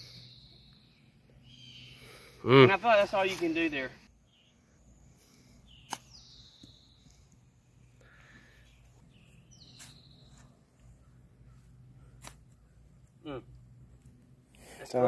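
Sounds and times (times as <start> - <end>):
bird calling: 0.0 - 7.4
sharp click: 5.9 - 6.1.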